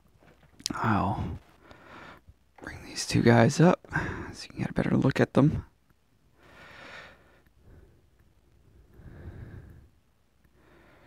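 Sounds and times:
faint breathing: 0.6s - 2.9s, 3.8s - 4.4s, 6.3s - 11.0s.

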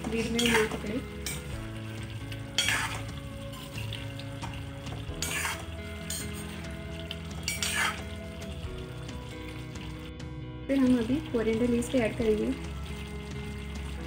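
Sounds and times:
steady sizzle: 0.0s - 14.0s
ladle scraping through curry: 2.5s - 3.2s, 5.1s - 6.6s, 7.4s - 8.2s.

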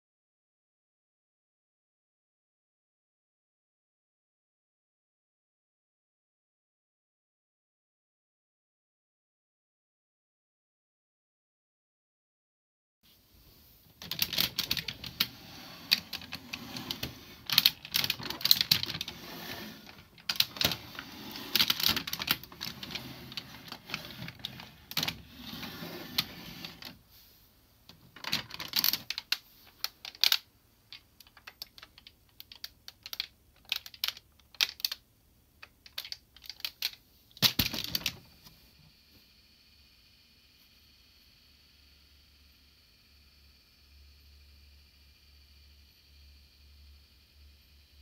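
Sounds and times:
plastic toy parts clicking: 14.0s - 27.0s, 28.2s - 35.0s, 35.6s - 38.2s.

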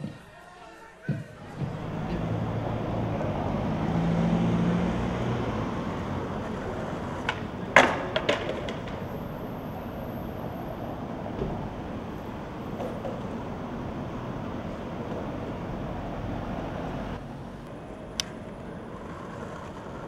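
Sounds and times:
city street traffic noise: 0.0s - 20.0s
skateboard clacks on pavement: 6.4s - 9.2s, 12.6s - 13.5s, 18.1s - 20.0s.

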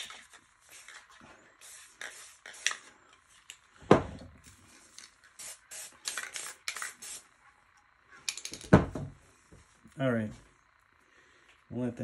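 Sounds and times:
spray paint can hissing: 0.0s - 2.9s, 5.4s - 7.3s.

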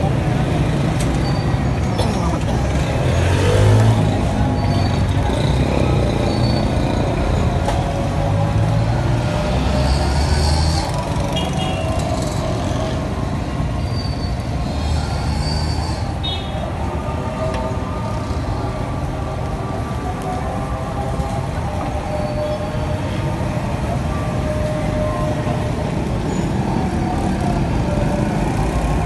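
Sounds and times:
vehicle engines rumbling: 0.0s - 29.0s.

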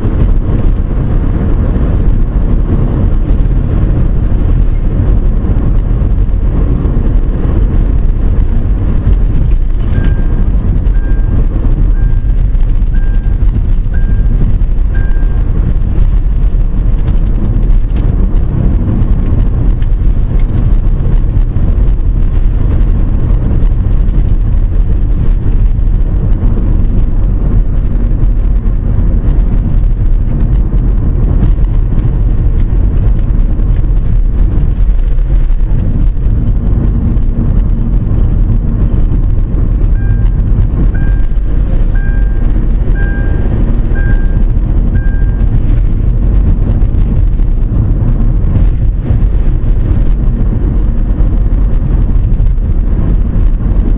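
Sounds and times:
car driving rumble: 0.0s - 53.9s
short high beeps: 9.8s - 15.5s, 40.0s - 40.4s, 41.0s - 44.4s, 45.0s - 45.5s.

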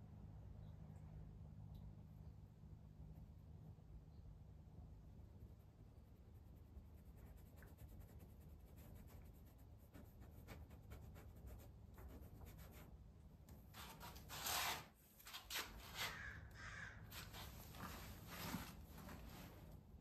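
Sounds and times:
paintbrush scratching on canvas: 5.3s - 13.0s, 13.7s - 19.4s
crow cawing: 16.1s - 17.1s.

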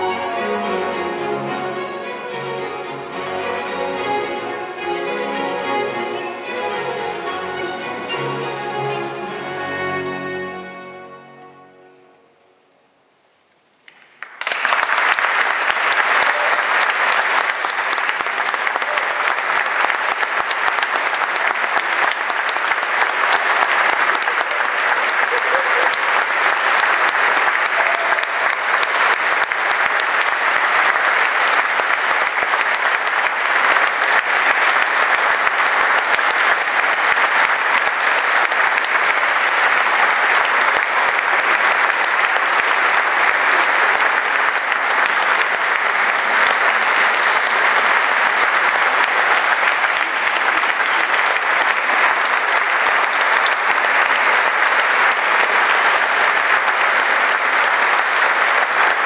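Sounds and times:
audience applauding: 13.8s - 59.0s.

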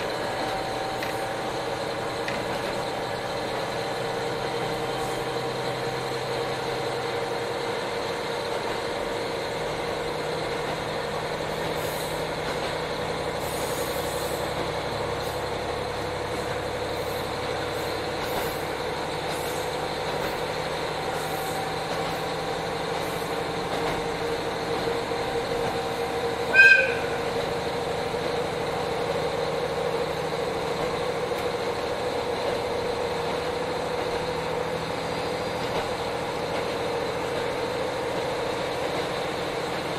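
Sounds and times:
diesel engine drone: 0.0s - 39.9s
train wheel and rail noise: 0.0s - 39.9s
loud high-pitched tone: 26.5s - 27.3s.

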